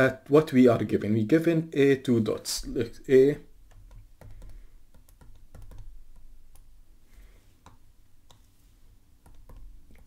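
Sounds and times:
low steady hum: 0:00.0 - 0:10.0
stylus tapping and clicking: 0:03.6 - 0:06.8, 0:07.6 - 0:08.6, 0:09.2 - 0:10.0.

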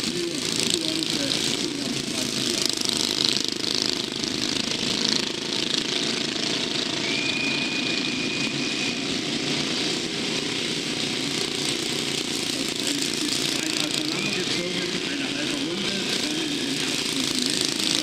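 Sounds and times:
motorcycle engines droning: 0:00.0 - 0:18.0.

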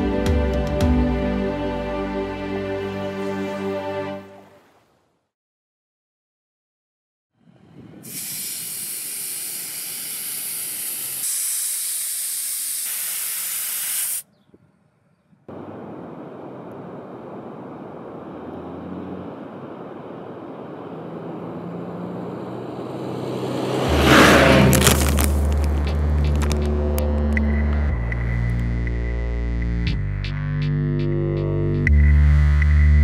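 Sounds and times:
compressed air hissing: 0:08.0 - 0:14.3.

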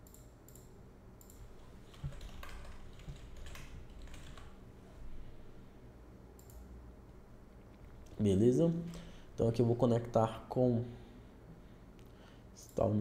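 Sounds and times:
faint keyboard typing: 0:00.0 - 0:04.6, 0:06.4 - 0:09.1.

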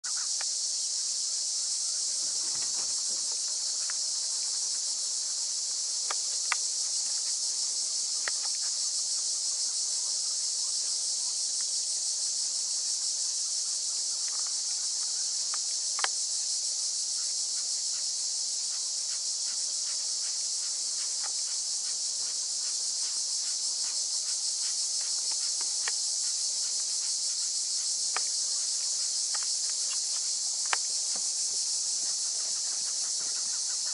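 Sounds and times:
high-pitched insect chorus: 0:00.0 - 0:33.9.

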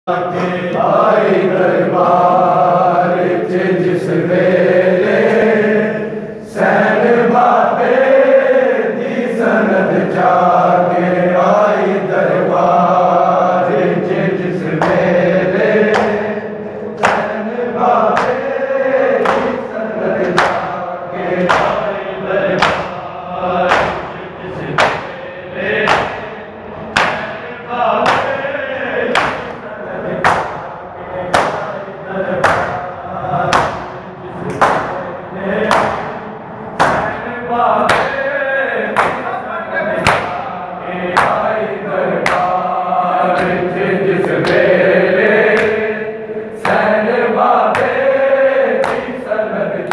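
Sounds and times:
men chanting in unison: 0:00.1 - 0:49.9
hands slapping bare chests: 0:15.9 - 0:16.2, 0:17.0 - 0:17.3, 0:20.2 - 0:20.7, 0:22.6 - 0:22.9, 0:25.8 - 0:26.3, 0:28.0 - 0:28.3, 0:29.2 - 0:29.6, 0:48.8 - 0:49.1.

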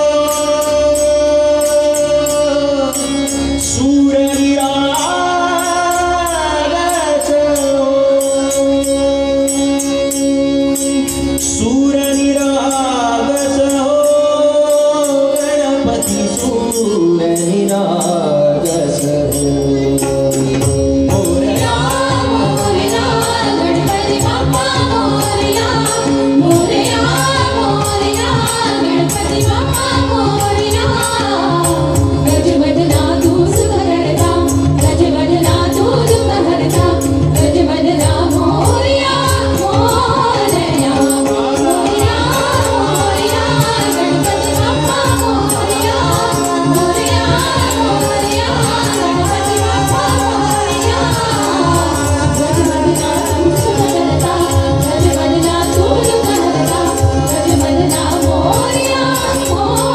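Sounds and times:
devotional singing: 0:00.0 - 0:59.9
tabla drumming: 0:00.0 - 0:59.9
steady held drone: 0:19.3 - 0:59.9.

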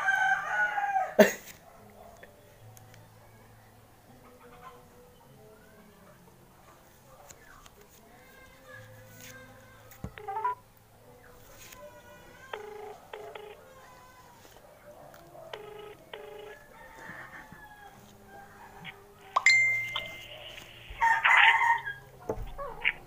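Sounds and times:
rooster crowing: 0:00.0 - 0:01.2, 0:15.8 - 0:19.1, 0:21.0 - 0:22.1
phone ringback double beeps: 0:12.6 - 0:13.6.

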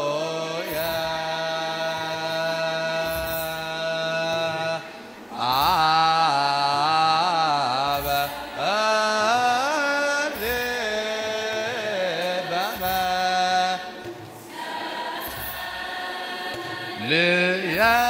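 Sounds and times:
choir chanting: 0:00.0 - 0:18.0.

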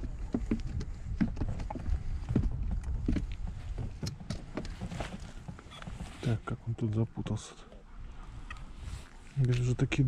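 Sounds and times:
soft knocks and thuds: 0:00.0 - 0:06.5.

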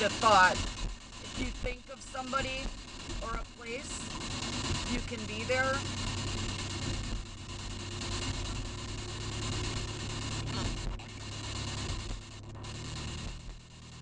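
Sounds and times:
car driving drone: 0:00.0 - 0:14.0
radio static hiss: 0:00.0 - 0:14.0.

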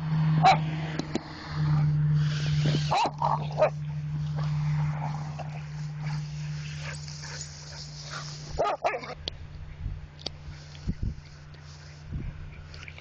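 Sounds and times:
steady low hum: 0:00.0 - 0:13.0
dogs yipping and whining: 0:02.8 - 0:03.8, 0:05.0 - 0:09.3.

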